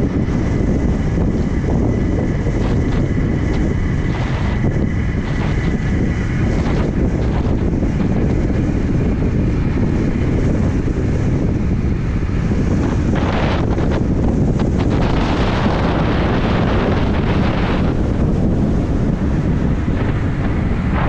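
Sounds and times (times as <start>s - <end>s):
skateboard wheels rolling on asphalt: 0.0s - 21.0s
wind rushing over microphone: 0.0s - 21.0s.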